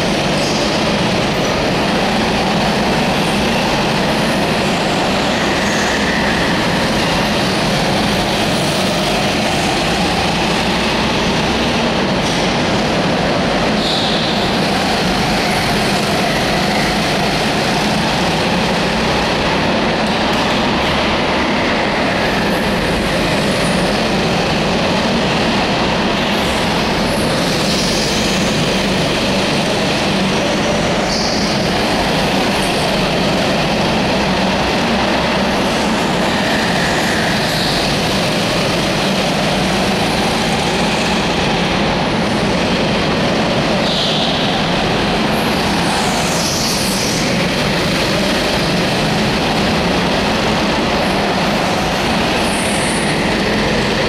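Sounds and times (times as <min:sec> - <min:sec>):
go-kart engines running: 0:00.0 - 0:54.0
tyre squeals: 0:13.7 - 0:14.7.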